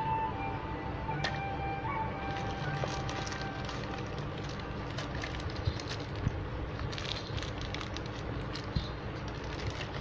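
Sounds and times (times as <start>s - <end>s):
plastic bags crinkling: 2.2s - 10.0s.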